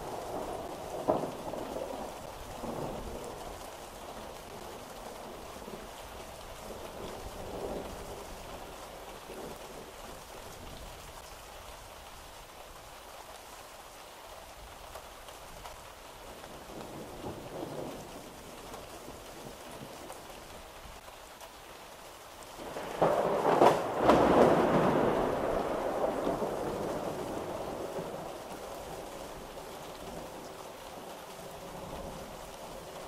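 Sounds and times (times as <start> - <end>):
steady rain falling: 0.0 - 33.0
loud thunder clap: 22.7 - 28.0.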